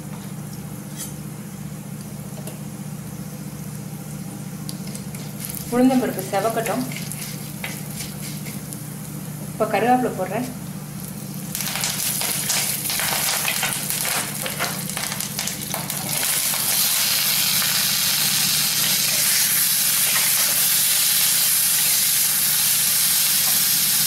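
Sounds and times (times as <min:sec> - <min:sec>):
leaves crackling in hot oil: 0:03.7 - 0:09.8, 0:10.7 - 0:24.0
food sizzling in pan: 0:11.0 - 0:24.0.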